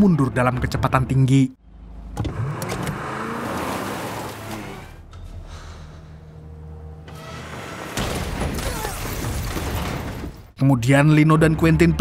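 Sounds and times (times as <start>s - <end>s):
car engine revving: 1.6s - 8.0s.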